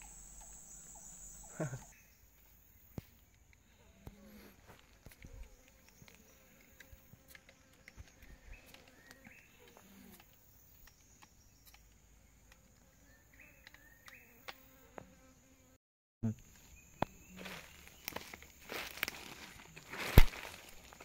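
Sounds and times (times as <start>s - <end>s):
insects buzzing and chirring: 0.0s - 21.0s.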